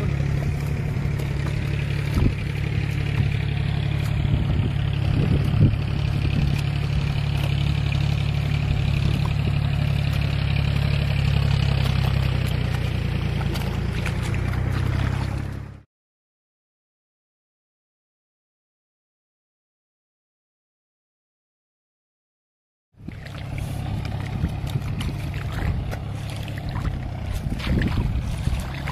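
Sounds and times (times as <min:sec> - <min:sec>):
tractor diesel engine running: 0:00.0 - 0:15.8, 0:23.0 - 0:28.9
hoe chopping into wet mud: 0:11.5 - 0:15.5, 0:23.1 - 0:28.9.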